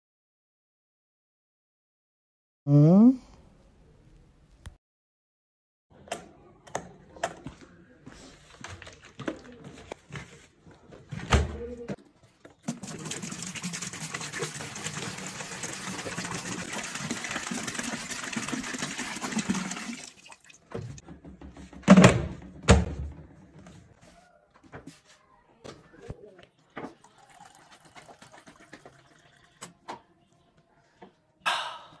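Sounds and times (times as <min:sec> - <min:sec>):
water pouring into container: 0:12.6 - 0:20.7, 0:27.0 - 0:29.7.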